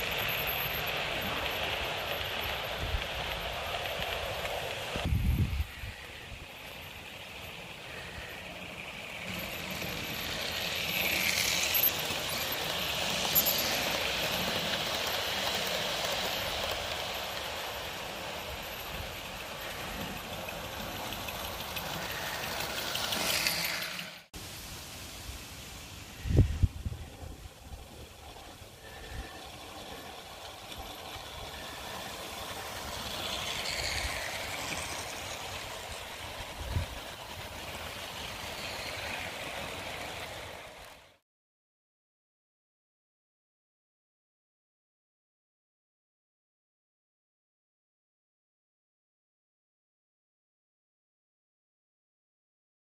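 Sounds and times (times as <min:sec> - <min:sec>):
model train whirring rattle: 0:00.0 - 0:24.3, 0:26.0 - 0:41.2.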